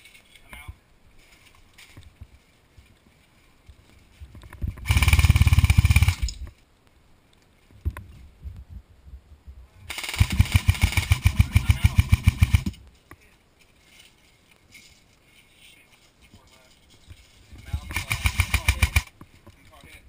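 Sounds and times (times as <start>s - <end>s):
airsoft rifle full-auto bursts: 4.8s - 6.3s, 9.9s - 12.7s, 17.9s - 19.1s.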